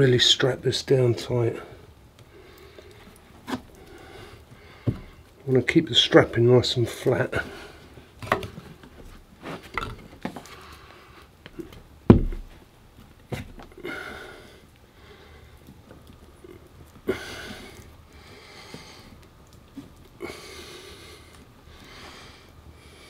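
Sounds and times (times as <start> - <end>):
heavy breaths through nose: 1.6 - 5.4, 13.8 - 15.8, 16.4 - 23.0
strap handling taps and knocks: 11.4 - 12.6
low thump: 12.1 - 12.5.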